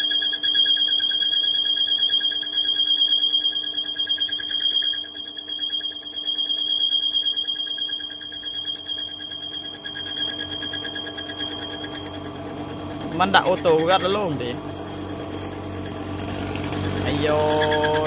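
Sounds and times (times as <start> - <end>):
metal lathe cutting squeal: 10.0 - 18.0.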